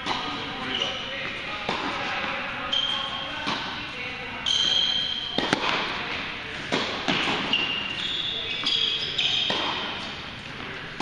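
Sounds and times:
tennis balls struck by rackets: 0.0s - 2.4s, 3.3s - 3.8s, 4.6s - 7.9s, 8.6s - 11.0s
tennis balls bouncing on hard court: 0.0s - 3.8s, 4.4s - 11.0s
shoe squeaks on court: 0.1s - 1.3s, 2.1s - 3.7s, 4.4s - 5.4s, 7.1s - 10.2s.

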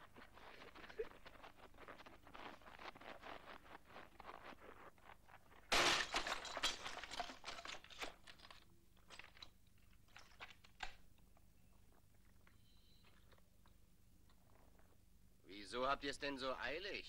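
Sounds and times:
footsteps crunching in snow: 0.0s - 5.6s
loud crash against shop front: 5.7s - 7.2s.

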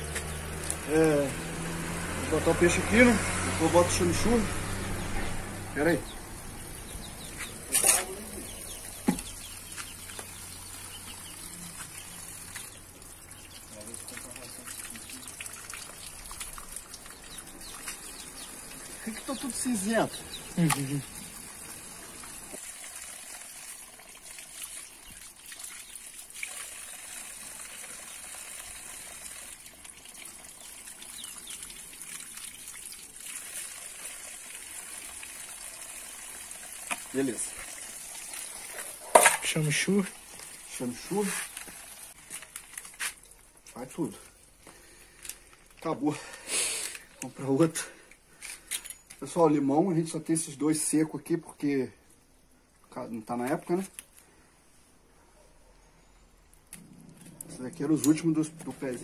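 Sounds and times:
water trickling into a bucket: 0.0s - 5.1s, 5.8s - 48.4s, 56.4s - 59.0s
chick peeping: 6.1s - 12.8s
short rustling hiss: 46.4s - 47.1s.

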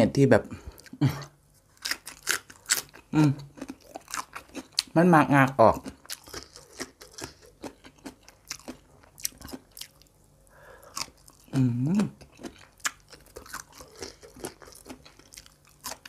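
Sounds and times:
crunchy chewing: 1.6s - 5.0s, 5.7s - 16.0s
person humming: 11.5s - 12.2s.

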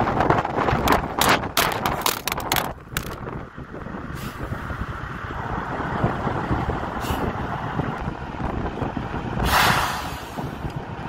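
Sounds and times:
air brake hiss: 7.0s - 7.3s, 9.4s - 10.6s.

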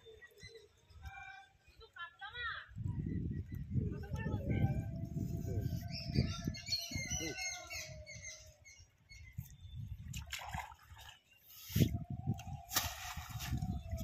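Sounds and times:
water splashing in a pond: 9.9s - 14.0s.

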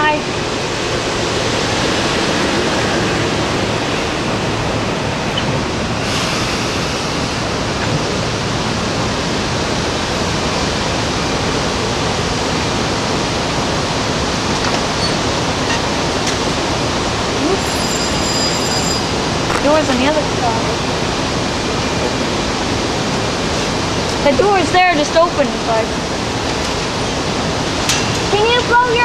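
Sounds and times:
electric train slowing to a stop: 0.5s - 19.5s
train brake hiss: 6.0s - 7.6s, 17.5s - 19.2s.

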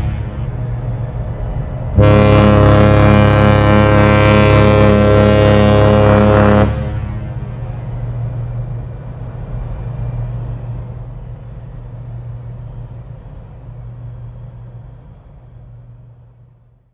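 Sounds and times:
constant low hum: 0.0s - 16.9s
ship machinery rumbling: 0.0s - 16.9s.

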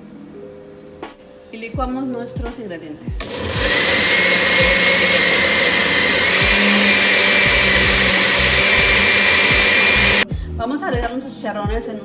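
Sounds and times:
blender running with high whine: 3.2s - 10.2s.

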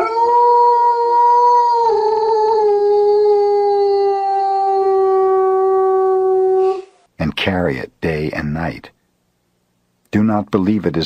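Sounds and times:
dog howling: 0.0s - 7.0s.

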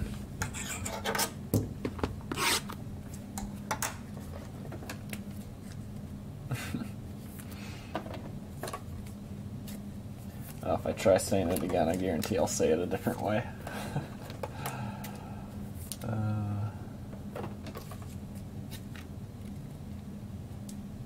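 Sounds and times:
steady low hum: 0.0s - 21.0s
cards swishing and rubbing: 2.3s - 2.8s.

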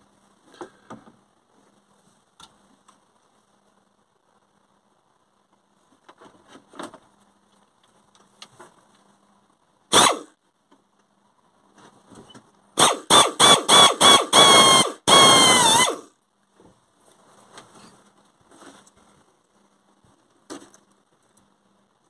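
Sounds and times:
cordless drill whining: 9.9s - 10.3s, 12.8s - 16.1s.

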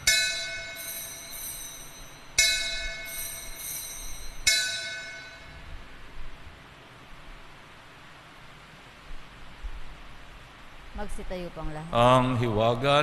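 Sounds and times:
altar bells ringing: 0.0s - 5.8s.

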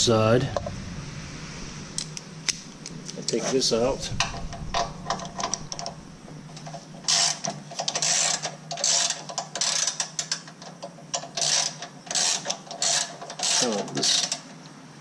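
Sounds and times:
socket ratchet clicking: 7.1s - 14.4s.

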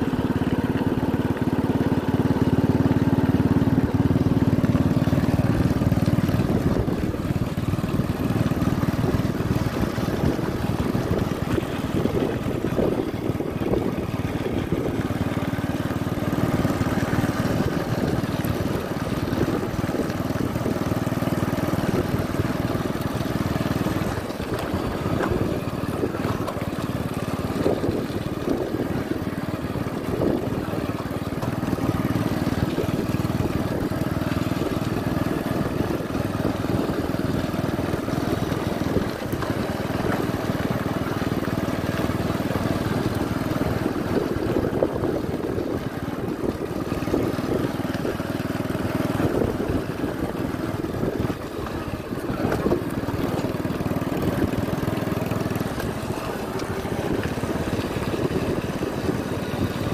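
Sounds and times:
motorcycle engine running: 0.0s - 59.9s
wind noise: 5.9s - 15.2s, 27.4s - 29.3s, 30.0s - 30.9s, 43.1s - 48.3s, 49.0s - 53.4s, 55.7s - 59.9s.

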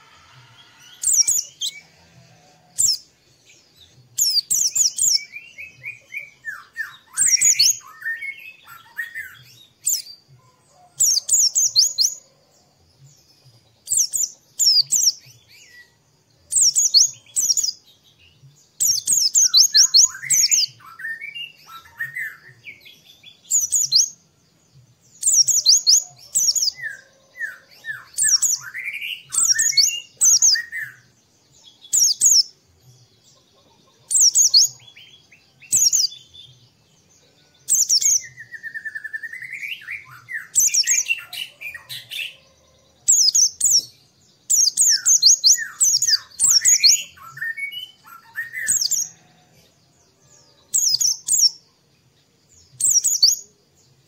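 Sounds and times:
bird rapid high chirping: 4.1s - 10.2s, 13.8s - 15.2s, 16.5s - 17.8s, 18.8s - 22.4s, 25.2s - 26.8s, 27.7s - 31.0s, 31.8s - 32.5s, 34.1s - 35.0s, 43.1s - 43.8s, 44.5s - 49.2s, 52.8s - 53.5s
whistled bird notes: 4.2s - 12.2s.

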